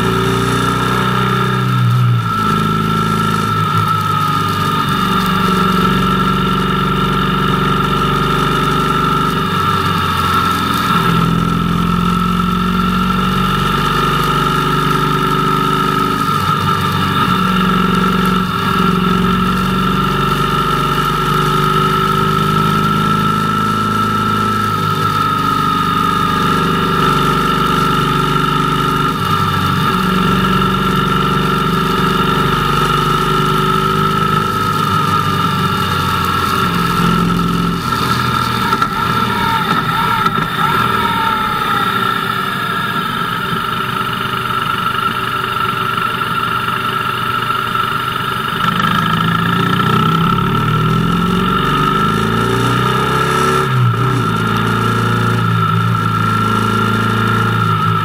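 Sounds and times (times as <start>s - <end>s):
motorcycle engine running: 0.0s - 58.0s
steady high whine: 29.4s - 52.2s.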